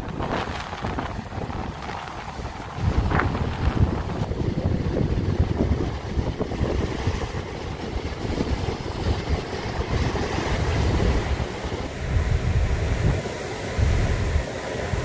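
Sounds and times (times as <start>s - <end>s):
waves breaking over rocks: 0.0s - 11.9s
wind buffeting microphone: 0.0s - 15.0s.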